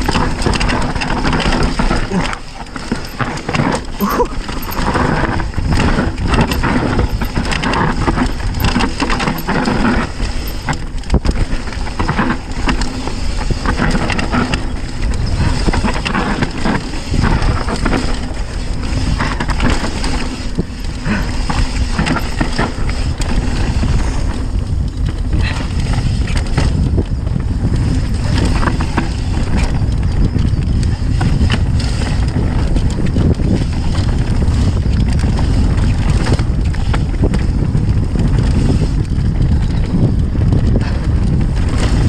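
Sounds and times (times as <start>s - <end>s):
bike rattling over bumps: 0.0s - 42.0s
bike tyres on dirt: 0.0s - 42.0s
wind buffeting microphone: 0.0s - 42.0s.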